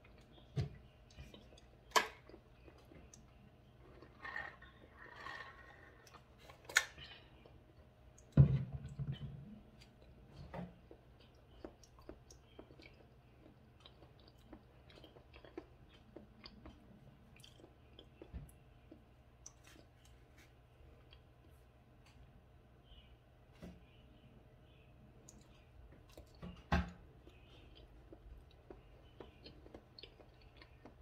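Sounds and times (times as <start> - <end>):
person chewing: 0.0 - 8.3, 10.8 - 21.6, 27.1 - 31.0.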